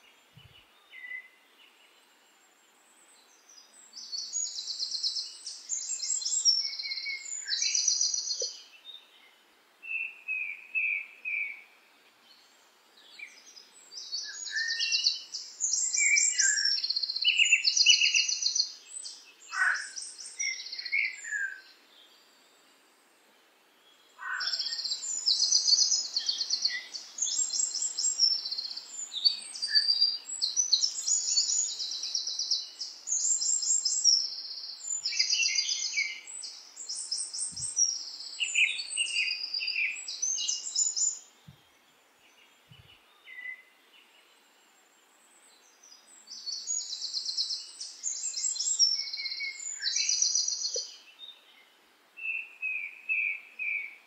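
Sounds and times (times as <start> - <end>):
songbirds singing trilled phrases: 0.0 - 2.2, 3.0 - 22.5, 23.8 - 54.0
lower bird calls: 13.1 - 21.7, 24.1 - 41.8.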